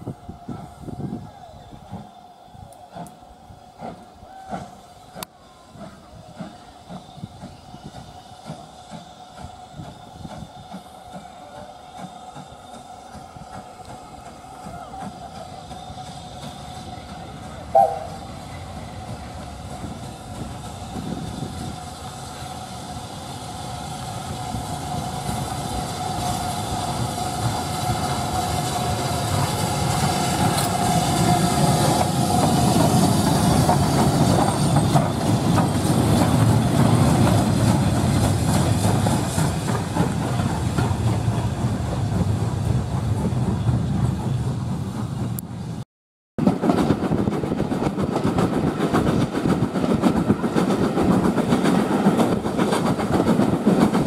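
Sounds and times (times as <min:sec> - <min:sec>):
steam locomotive passing: 0:00.0 - 0:45.8, 0:46.4 - 0:54.0
wheels rattling over rails: 0:24.2 - 0:45.6.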